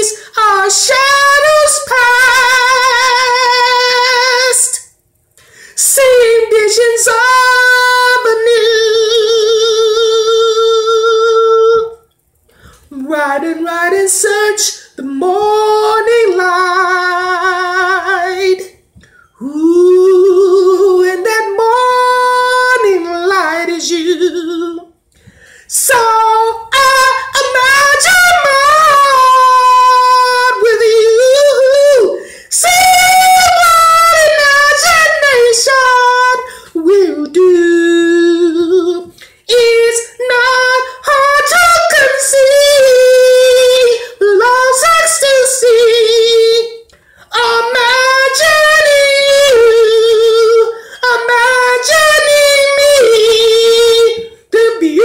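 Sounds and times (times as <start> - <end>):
man singing unaccompanied: 25.7 - 55.0.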